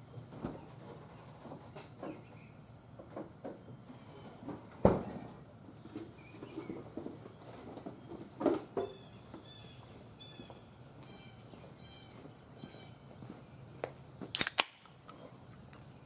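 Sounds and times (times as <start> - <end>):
sharp snap: 14.3 - 15.0.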